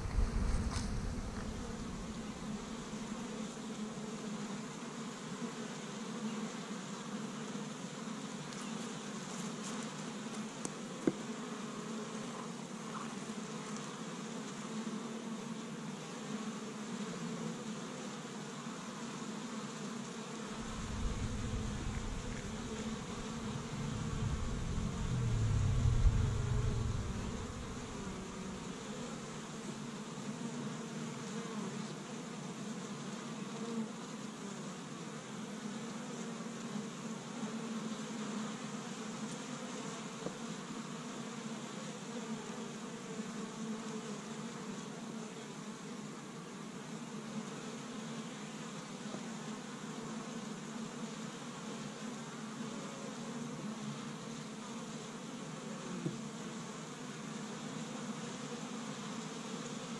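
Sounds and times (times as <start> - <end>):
low rumble: 0.0 - 3.0, 20.6 - 29.4
honey bees buzzing: 0.0 - 10.4, 11.1 - 31.8.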